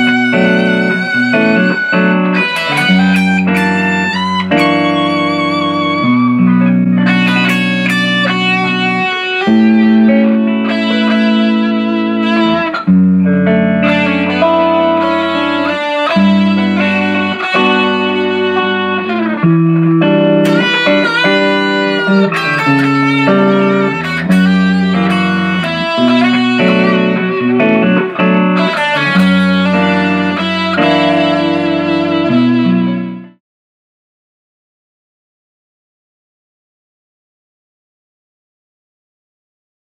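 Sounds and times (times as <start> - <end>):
electric guitar notes and chords: 0.0 - 33.4.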